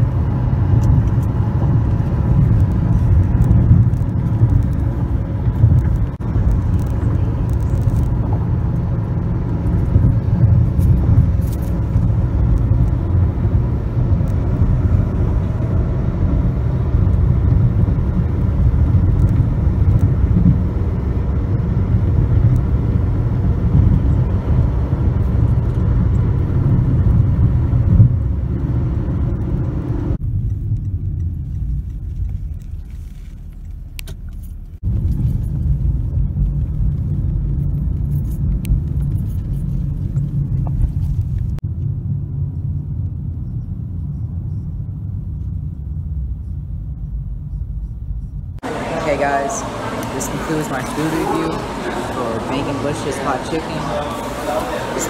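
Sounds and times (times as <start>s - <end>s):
car tyre and engine rumble: 0.0s - 55.0s.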